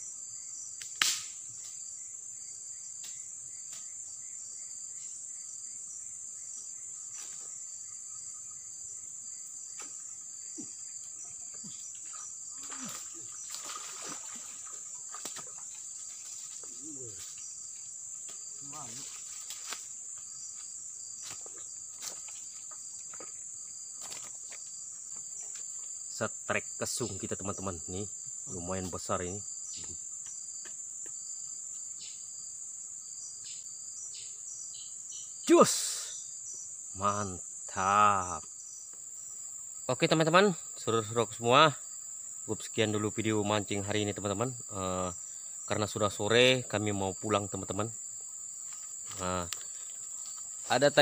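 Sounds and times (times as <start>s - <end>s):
insects buzzing: 0.0s - 51.0s
fish splashing and thrashing: 12.6s - 15.8s.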